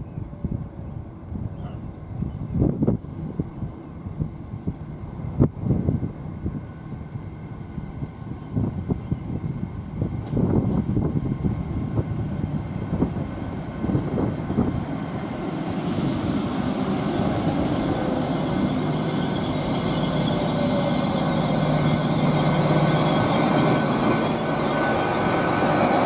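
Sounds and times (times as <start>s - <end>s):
low train hum: 0.0s - 26.0s
train wheels rumbling on rail: 0.4s - 26.0s
high-pitched brake squeal: 15.6s - 26.0s.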